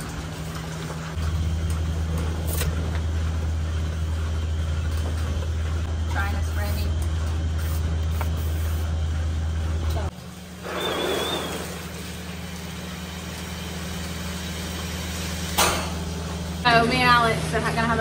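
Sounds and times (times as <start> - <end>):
milking machinery droning: 0.0 - 18.0
water hissing rush: 10.6 - 12.3
watery noise: 10.6 - 12.5.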